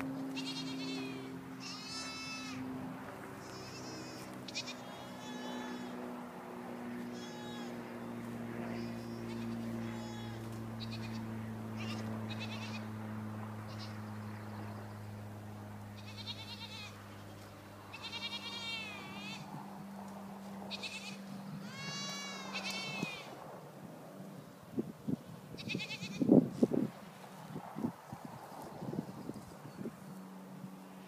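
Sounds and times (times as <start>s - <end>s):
steady low hum: 0.0s - 31.0s
goats bleating: 0.3s - 2.6s, 3.4s - 6.0s, 7.0s - 7.9s, 8.8s - 12.9s, 16.0s - 19.5s, 20.7s - 23.3s.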